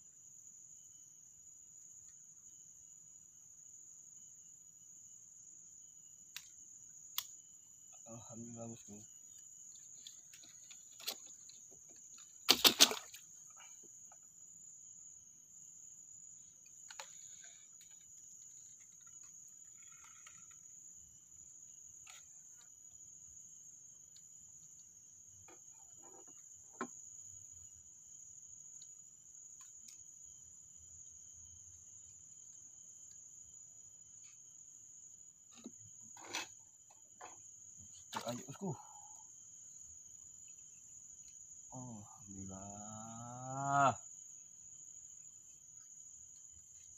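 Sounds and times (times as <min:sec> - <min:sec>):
high-pitched insect chorus: 0:00.0 - 0:46.9.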